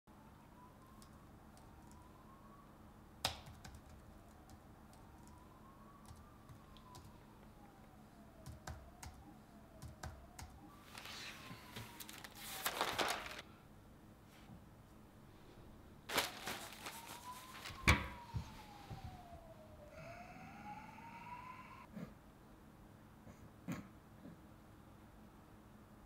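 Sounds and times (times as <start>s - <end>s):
laptop keyboard typing: 3.2s - 5.4s, 6.0s - 10.7s
newspaper pages rustling: 10.8s - 13.4s, 16.1s - 18.8s
faint tone: 16.4s - 21.9s.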